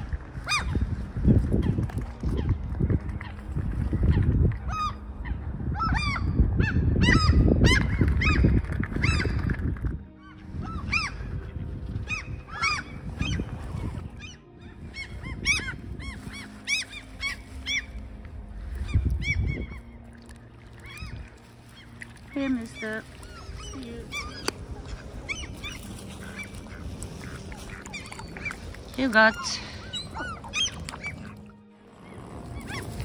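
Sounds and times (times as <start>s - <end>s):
gulls calling: 1.5s - 33.0s.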